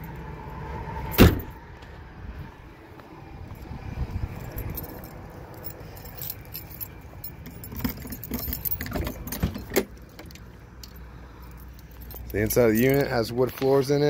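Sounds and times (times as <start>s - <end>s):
keys jangling: 4.2s - 14.0s.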